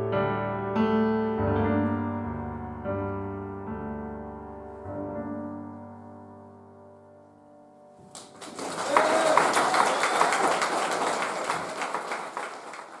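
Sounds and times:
piano chord: 0.0 - 8.0
audience applause: 8.1 - 13.0.

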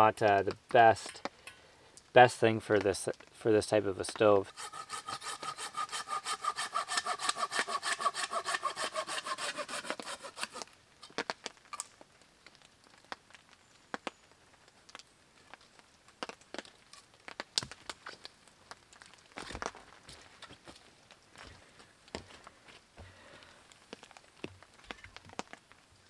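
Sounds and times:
bow saw cutting wood: 4.5 - 10.6
wood cracking and snapping: 4.5 - 14.1, 14.8 - 21.2.

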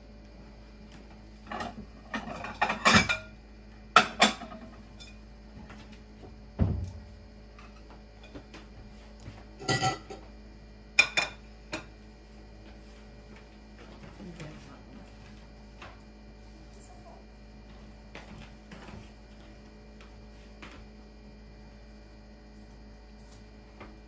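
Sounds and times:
dull thump: 6.6 - 7.4
dishes and cutlery clinking: 9.6 - 10.2.

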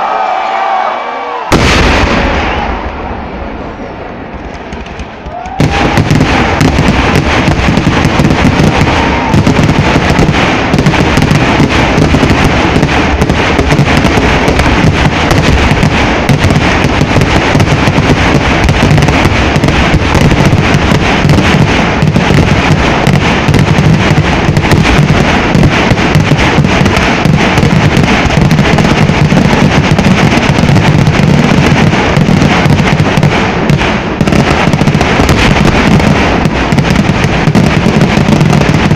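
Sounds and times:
fireworks barrage: 0.0 - 38.9.

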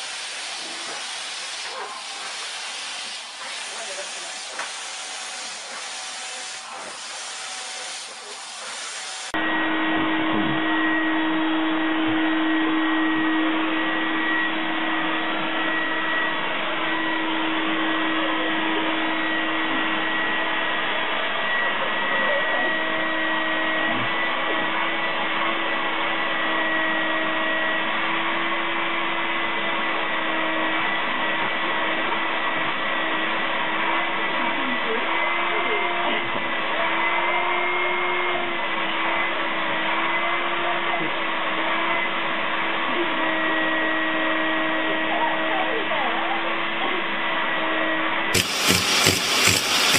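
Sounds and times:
vacuum cleaner whine: 0.0 - 34.4, 48.3 - 49.9.

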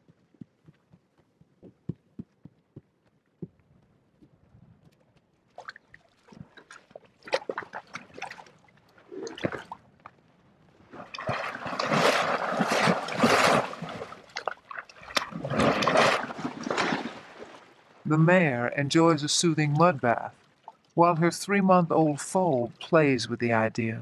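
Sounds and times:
horse drinking water drips: 5.4 - 10.2, 10.9 - 17.6, 20.5 - 21.0
horse splashing in mud water: 5.5 - 9.8, 10.9 - 17.9.

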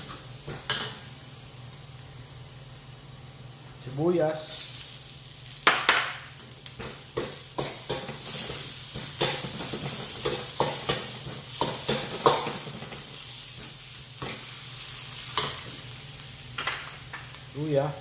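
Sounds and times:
onions sizzling in hot oil: 0.0 - 18.0.

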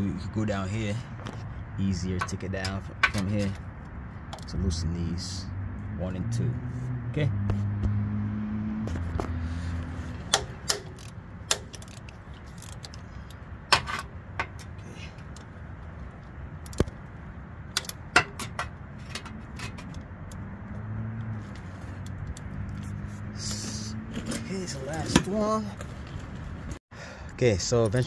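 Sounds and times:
ratchet wrench clicking: 10.3 - 13.4.

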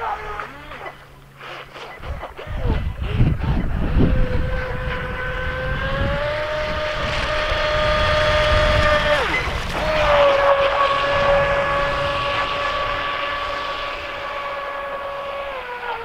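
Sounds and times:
toy boat motor whining: 0.0 - 16.0.

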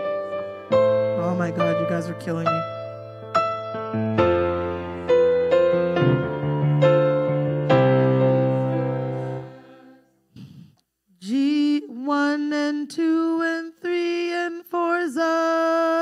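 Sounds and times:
electric keyboard chords: 0.0 - 10.0
person singing: 11.2 - 16.0.

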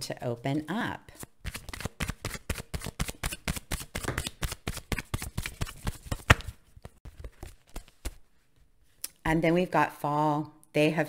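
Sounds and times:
cards being shuffled: 1.2 - 8.2.

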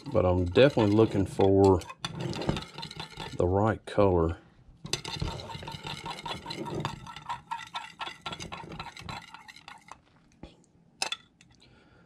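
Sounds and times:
metal utensil stirring in glass: 0.0 - 3.4, 4.9 - 10.0.

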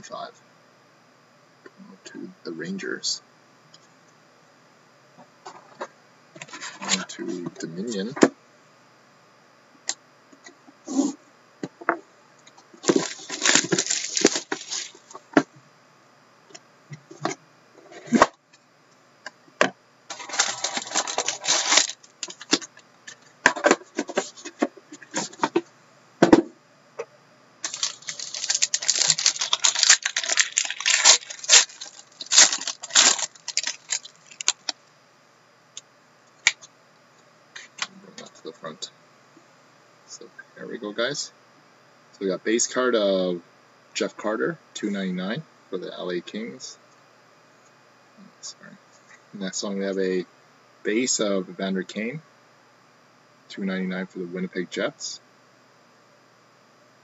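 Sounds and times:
plastic wrap crinkling and tearing: 12.8 - 15.1, 20.1 - 22.6, 27.6 - 34.8
knife slitting plastic wrap: 12.9 - 14.9, 20.2 - 22.4, 27.6 - 34.6.

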